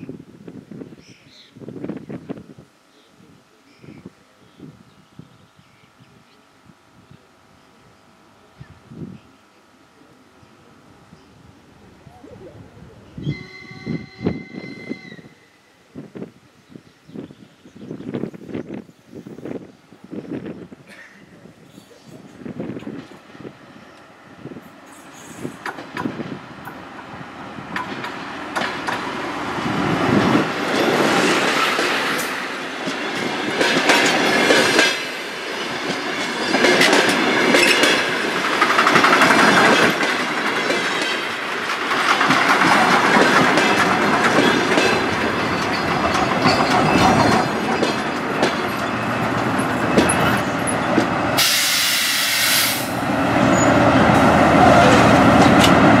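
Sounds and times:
train wheels clacking on rail joints: 24.9 - 27.1, 27.7 - 29.3, 30.1 - 52.1, 53.6 - 56.0
burst of hiss: 51.4 - 53.0.

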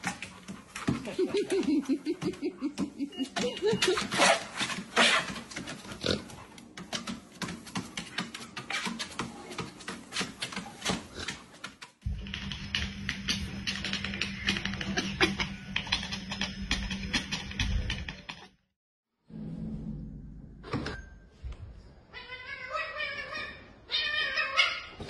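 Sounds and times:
dog paws tapping on treadmill belt: 0.0 - 18.4
music with low hum: 12.1 - 18.2.

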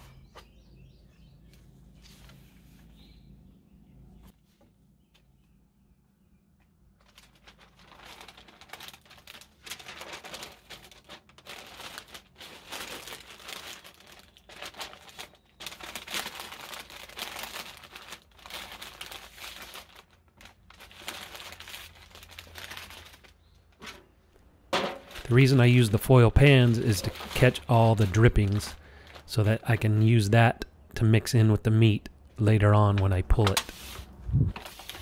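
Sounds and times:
butcher paper crinkling: 7.0 - 24.1, 24.8 - 30.3, 32.4 - 35.0.

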